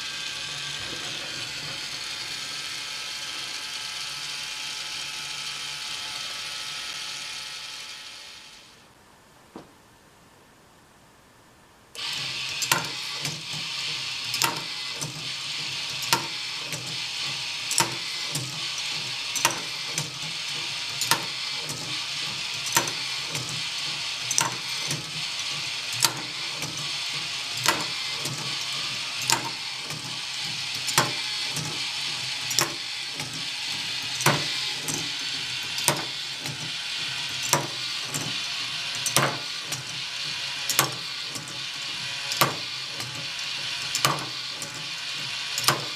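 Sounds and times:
motor and plastic gears whirring: 0.0s - 8.8s, 12.0s - 45.9s
balls clicking on track: 12.0s - 45.9s.

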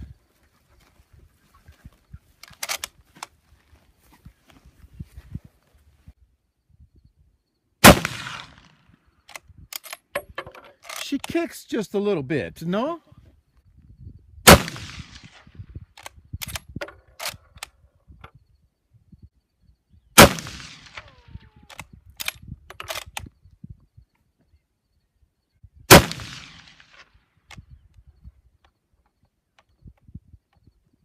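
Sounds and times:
rifle bolt clicks and clacks: 2.4s - 3.3s, 9.3s - 11.4s, 21.7s - 23.3s
rifle shots: 7.8s - 8.8s, 14.4s - 15.5s, 20.2s - 21.3s, 25.9s - 27.0s.

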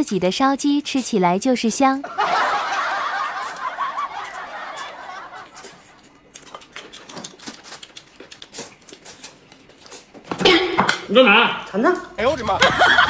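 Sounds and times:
noodles being slurped: 3.4s - 10.2s
quiet chewing with smacks: 3.5s - 10.4s.

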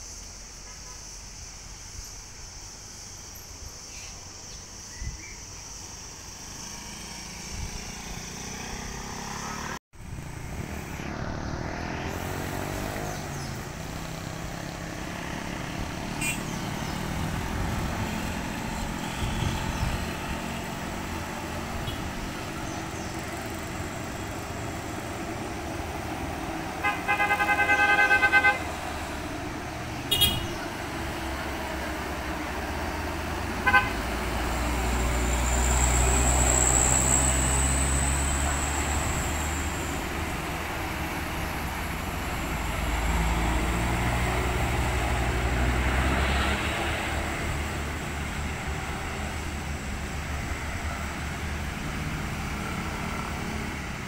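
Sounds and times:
motorcycle engines passing: 5.9s - 54.0s
vehicle horn: 16.1s - 16.6s, 19.0s - 19.8s, 21.8s - 22.1s, 26.6s - 28.9s, 30.0s - 30.7s, 33.5s - 34.2s.

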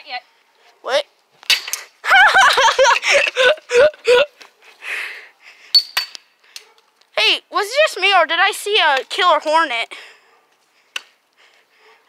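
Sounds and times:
boy laughing and yelping: 1.9s - 4.7s.

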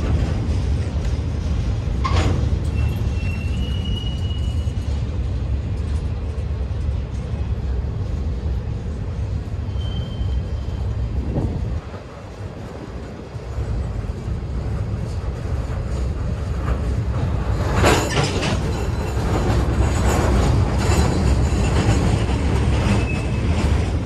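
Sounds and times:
train wheels rumbling on rails: 0.0s - 24.0s
high wheel squeal: 2.6s - 5.0s, 9.6s - 11.0s, 22.8s - 23.7s.

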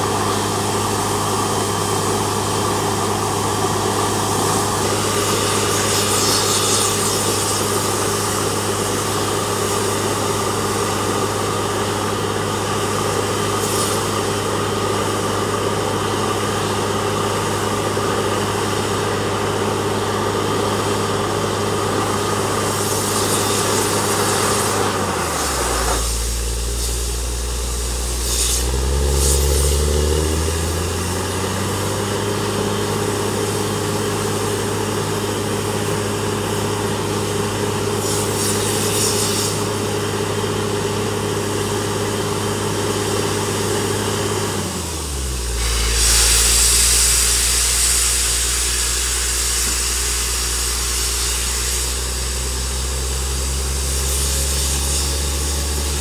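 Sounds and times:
drilling rig engine running: 0.0s - 56.0s.

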